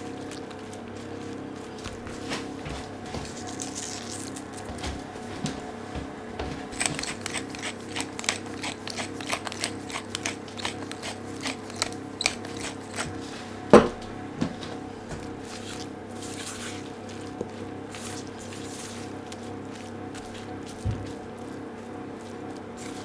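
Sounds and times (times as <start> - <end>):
salt flakes crackling: 0.0 - 2.6, 3.3 - 4.7, 15.3 - 23.0
spatula tossing food rustle: 0.0 - 4.8, 15.1 - 23.0.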